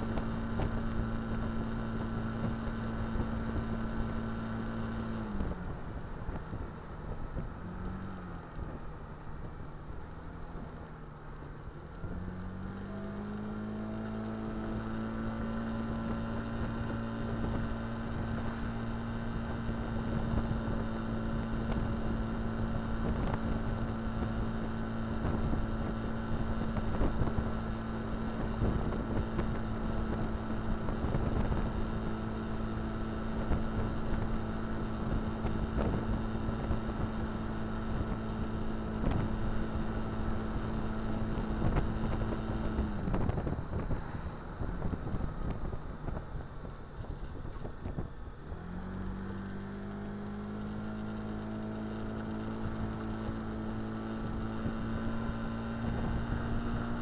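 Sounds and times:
scooter engine: 0:00.0 - 0:57.0
wind buffeting microphone: 0:37.9 - 0:48.3.

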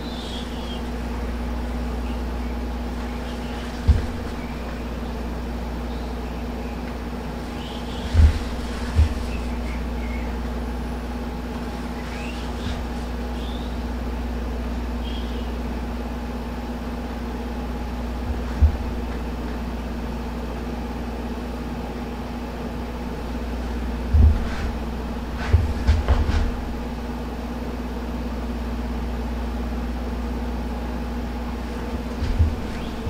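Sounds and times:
dull thumps: 0:00.0 - 0:05.9, 0:07.2 - 0:14.0, 0:17.9 - 0:20.3, 0:23.1 - 0:27.0, 0:31.5 - 0:33.0
motor humming: 0:00.0 - 0:15.9, 0:17.4 - 0:21.0, 0:31.3 - 0:33.0.

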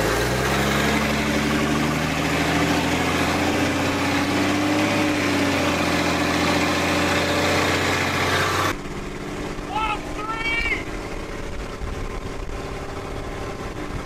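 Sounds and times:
truck diesel engine accelerating: 0:00.0 - 0:14.0.

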